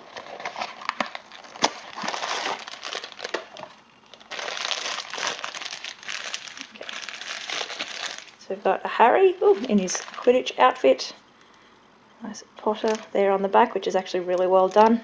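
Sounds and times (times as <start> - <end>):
cardboard box rustling: 0.0 - 3.4
foil bag crinkling: 0.0 - 8.4, 9.4 - 10.7, 14.0 - 15.0.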